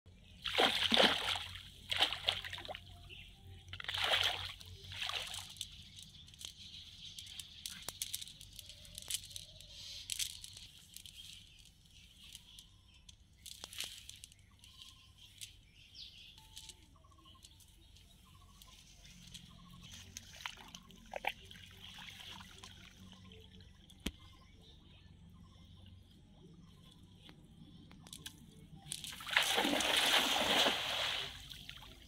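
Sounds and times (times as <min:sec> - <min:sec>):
cast net rustling and clicking: 0:03.8 - 0:21.4.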